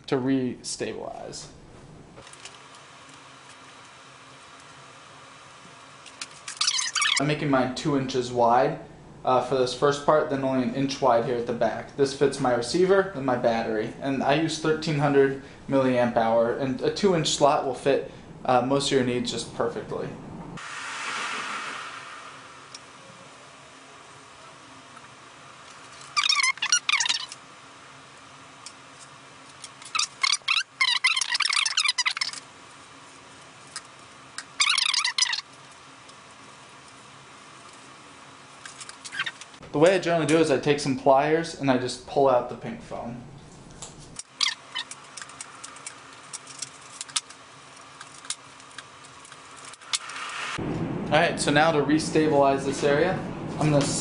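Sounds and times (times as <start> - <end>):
knife squeaking through foam: 6.5 - 7.2, 26.1 - 27.4, 29.9 - 32.4, 34.6 - 35.5, 39.1 - 39.4
foam clicks and crackles: 43.8 - 50.1.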